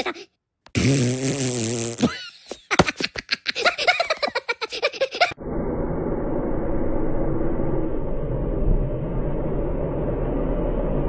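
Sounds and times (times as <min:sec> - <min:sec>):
cartoon voices giggling: 0:02.0 - 0:05.4.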